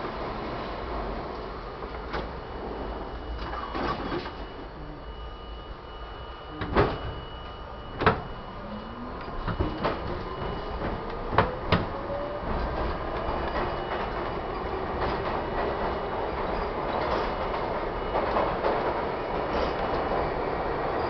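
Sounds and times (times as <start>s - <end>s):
subway train rumble: 0.0s - 21.0s
knocks and clunks: 9.3s - 12.0s.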